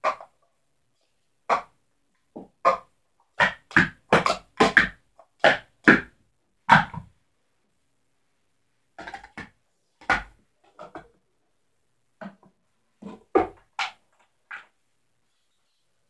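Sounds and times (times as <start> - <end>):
plastic cups knocking: 2.3 - 6.1, 9.0 - 11.2.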